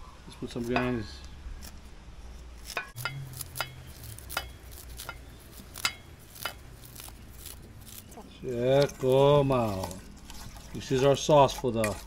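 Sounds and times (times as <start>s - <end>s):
scissors snipping onion stalks: 2.5s - 11.0s.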